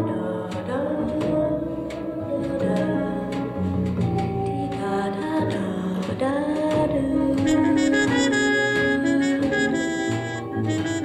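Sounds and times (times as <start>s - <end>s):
jazz band playing: 7.2s - 11.0s
saxophone melody: 7.4s - 11.0s.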